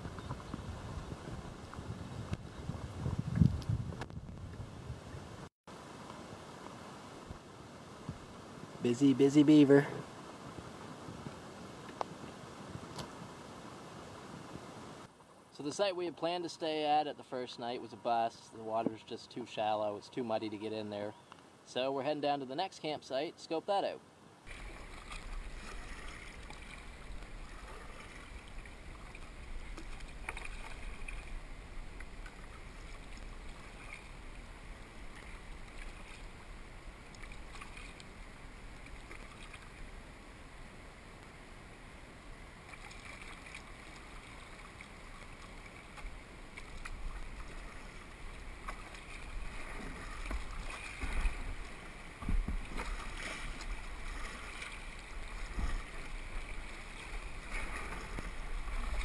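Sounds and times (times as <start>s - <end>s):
wind rumble on microphone: 0.0s - 5.5s, 49.4s - 54.3s
kayak bumps: 24.5s - 34.3s, 42.7s - 59.0s.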